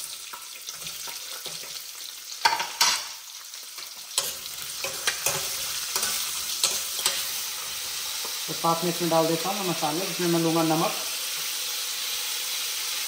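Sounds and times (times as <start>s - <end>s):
onion sizzling in oil: 0.0s - 13.0s
ladle scraping and clinking pan: 4.2s - 8.4s.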